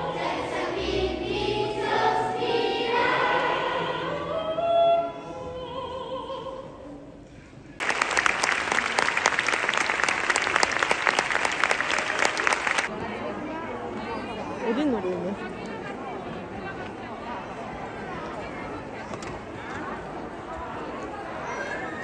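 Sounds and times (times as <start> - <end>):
chorus singing: 0.0 - 6.9
audience applause: 7.8 - 12.9.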